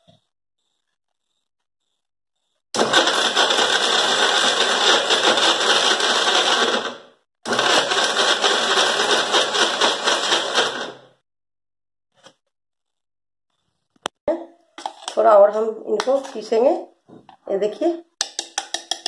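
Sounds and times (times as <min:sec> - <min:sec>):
mixer grinder motor: 0:02.8 - 0:11.2.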